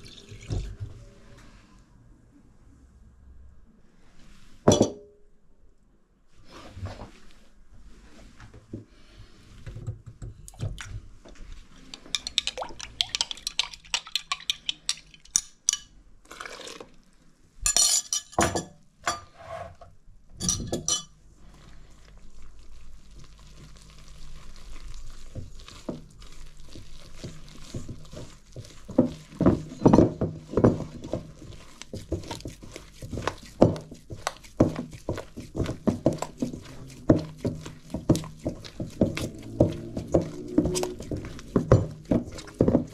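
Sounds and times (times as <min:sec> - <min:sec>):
liquid pouring: 0:00.0 - 0:00.9, 0:11.7 - 0:17.2
hand mixing dough in metal bowl: 0:06.4 - 0:18.0, 0:20.5 - 0:42.9
glass jug clinking: 0:20.4 - 0:21.1.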